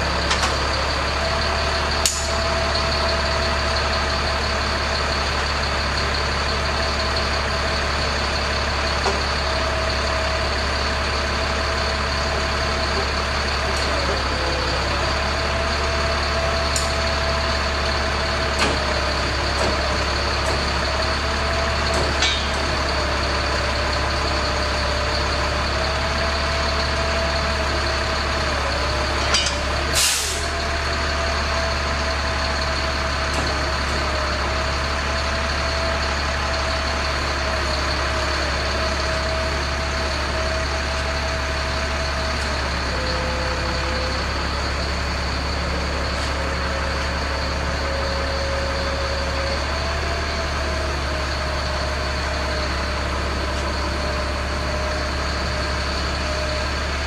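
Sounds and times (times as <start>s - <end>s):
continuous whine: 0.0s - 57.0s
truck engine running: 0.0s - 57.0s
hissing air burst: 30.0s - 30.4s.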